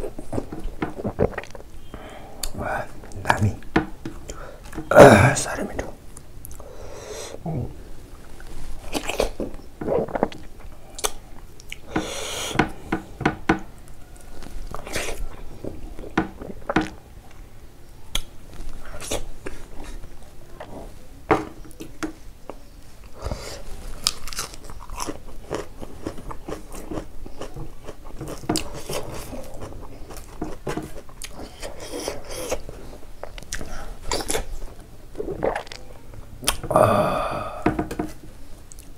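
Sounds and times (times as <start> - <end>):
man chewing and biting: 0.0 - 3.2, 14.4 - 17.0, 23.2 - 34.5, 35.2 - 36.6.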